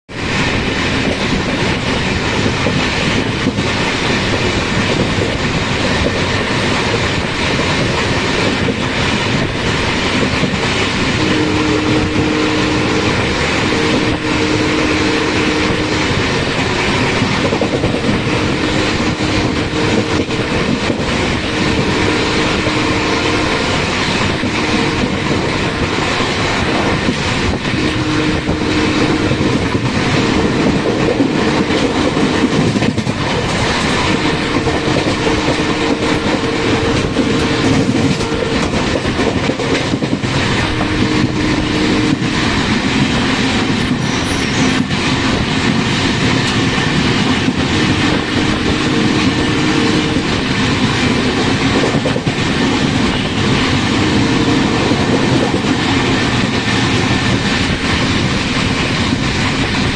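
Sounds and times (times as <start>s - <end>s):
train wind rush: 0.0s - 59.9s
wheel-on-rail noise: 0.1s - 59.9s
low steady horn notes: 11.2s - 16.2s, 21.4s - 23.7s, 27.7s - 29.4s, 34.1s - 38.7s.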